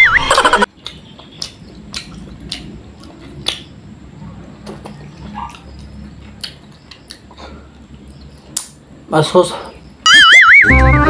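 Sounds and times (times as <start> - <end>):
person chewing pizza: 0.7 - 8.8
wet mouth smacks and clicks: 0.8 - 3.8, 4.8 - 7.3, 8.4 - 8.8.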